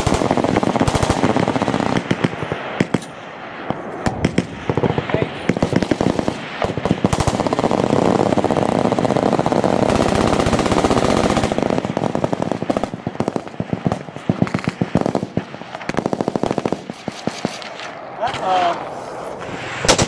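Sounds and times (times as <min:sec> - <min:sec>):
machine guns firing: 0:00.0 - 0:03.1, 0:03.7 - 0:17.9.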